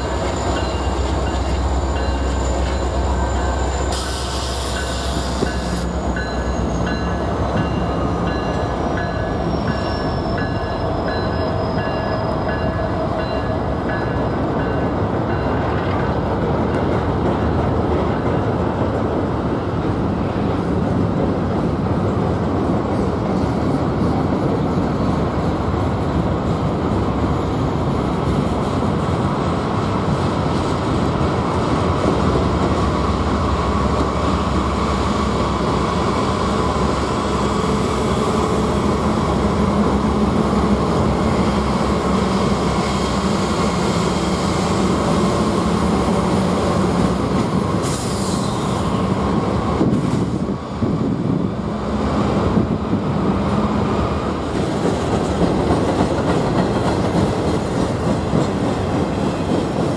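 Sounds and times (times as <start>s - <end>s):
diesel locomotive engine hum: 0.0s - 59.9s
train wheels rumbling on rail: 0.0s - 59.9s.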